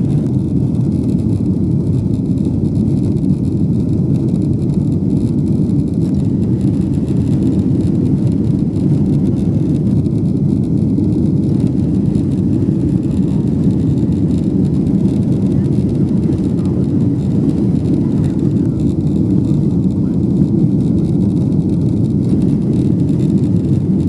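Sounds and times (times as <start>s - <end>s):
aircraft cabin low rumble: 0.0s - 24.0s.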